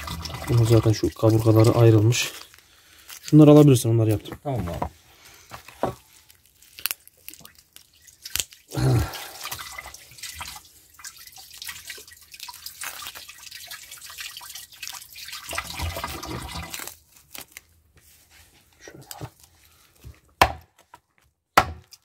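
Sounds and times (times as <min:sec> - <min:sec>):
water dripping: 0:00.0 - 0:02.1, 0:07.2 - 0:16.9.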